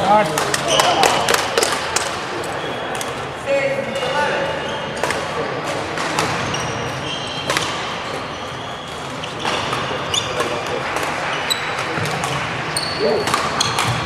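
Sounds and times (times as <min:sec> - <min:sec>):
racket hitting shuttlecock: 0:05.0 - 0:14.0
shoes squeaking on wooden floor: 0:06.2 - 0:14.0.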